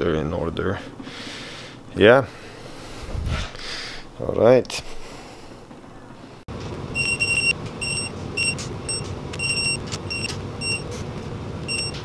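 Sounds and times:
steady low hum: 0.0 - 12.0
high electronic beeps: 7.0 - 10.8, 11.7 - 12.0.

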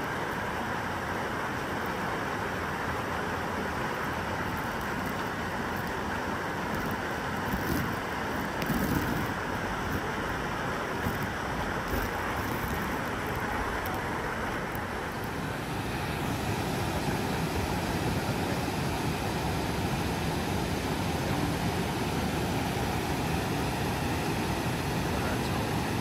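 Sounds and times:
water rushing over cascades: 0.0 - 26.0.

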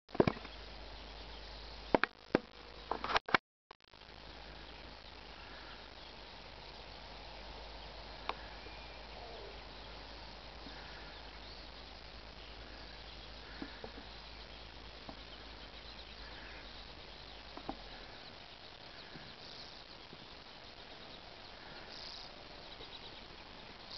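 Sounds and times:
steady outdoor hiss: 0.1 - 3.2, 3.9 - 23.9
faint chirps: 4.0 - 23.9.

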